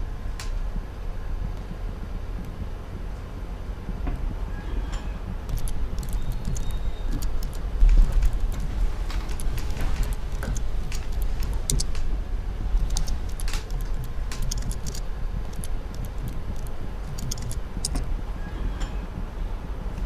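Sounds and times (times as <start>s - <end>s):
steady low rumble: 0.0s - 20.0s
keyboard key clicks: 5.5s - 12.1s, 12.8s - 18.1s.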